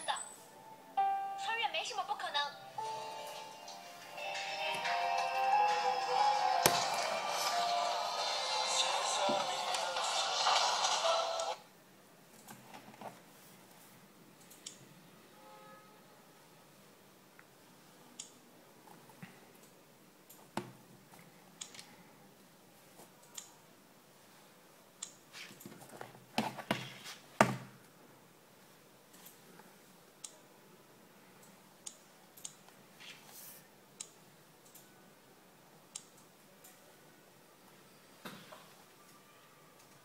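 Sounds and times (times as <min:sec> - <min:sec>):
tablet knocking and rubbing: 0:26.0 - 0:27.7.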